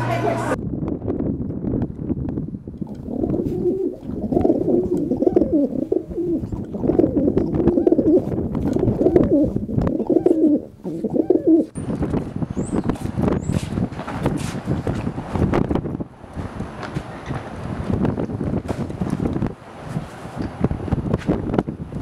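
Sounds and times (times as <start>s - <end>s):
wind noise: 0.0s - 22.0s
pigeons cooing: 3.0s - 11.8s.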